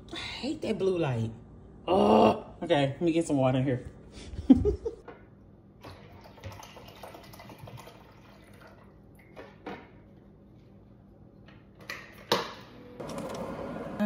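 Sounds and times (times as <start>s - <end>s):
water trickling into reservoir: 5.8s - 9.4s.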